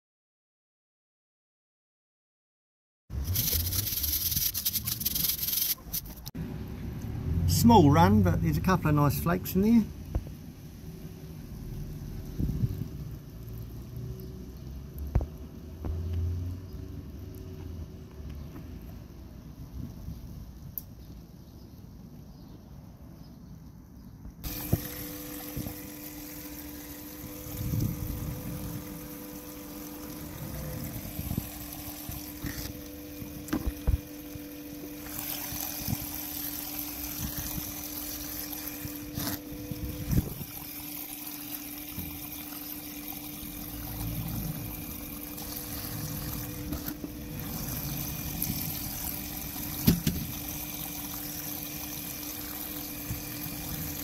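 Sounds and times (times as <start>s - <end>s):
water pump humming: 3.1s - 20.9s, 24.4s - 54.0s
water running down sluice: 3.2s - 6.3s, 10.9s - 17.5s, 24.4s - 54.0s.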